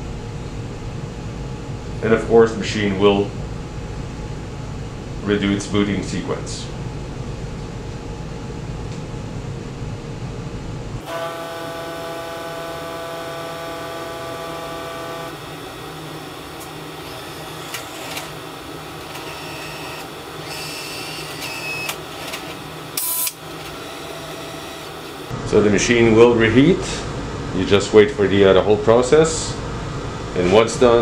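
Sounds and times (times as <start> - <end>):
droning multi-tone whine: 10.9 - 26.9
coffee machine humming: 11.0 - 25.4.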